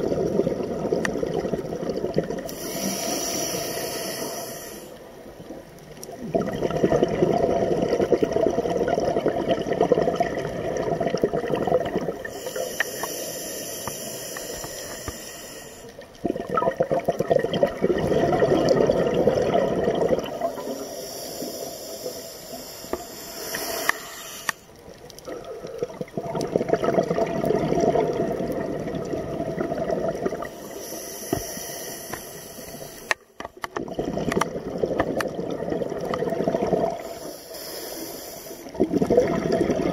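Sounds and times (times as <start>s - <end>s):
exhaled bubbling underwater: 0.0s - 22.7s, 23.9s - 37.4s, 38.6s - 39.9s
regulator inhale hiss: 2.5s - 5.2s, 12.2s - 16.1s, 20.4s - 24.8s, 30.5s - 33.4s, 37.0s - 38.8s.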